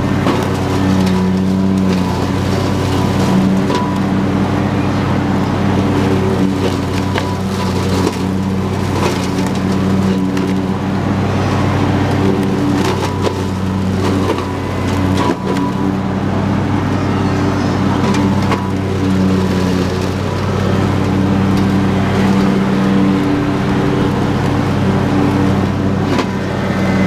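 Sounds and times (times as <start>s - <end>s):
lawn tractor engine running: 0.0s - 27.0s
sticks striking mower blades: 25.5s - 27.0s.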